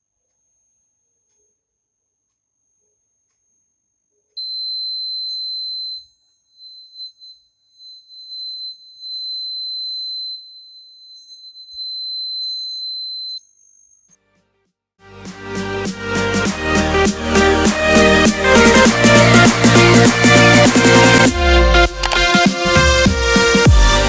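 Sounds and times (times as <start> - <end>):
high-pitched buzzer tone: 4.4 - 13.5.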